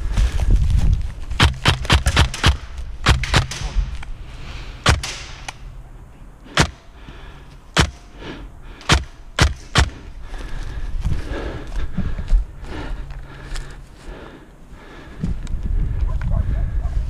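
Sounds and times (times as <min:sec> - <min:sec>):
airsoft gun shots: 0:01.4 - 0:03.9, 0:04.8 - 0:05.6, 0:06.5 - 0:06.9, 0:07.8 - 0:08.1, 0:08.8 - 0:10.0.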